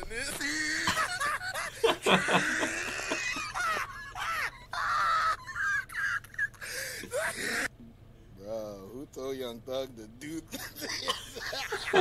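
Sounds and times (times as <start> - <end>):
hysterical laughter: 0.0 - 7.7, 10.6 - 12.0.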